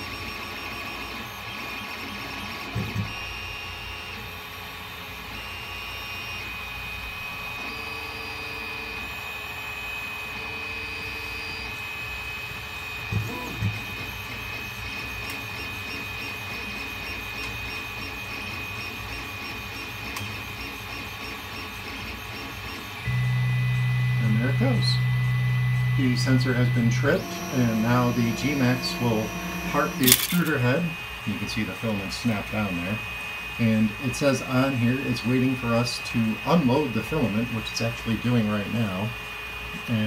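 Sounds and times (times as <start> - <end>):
stepper motors whirring tones: 12.9 - 31.2
constant high tone: 23.2 - 30.7.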